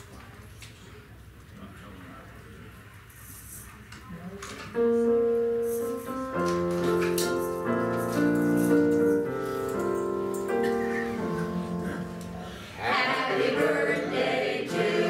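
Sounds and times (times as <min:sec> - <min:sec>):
keyboard playing held chords: 0:04.8 - 0:15.0.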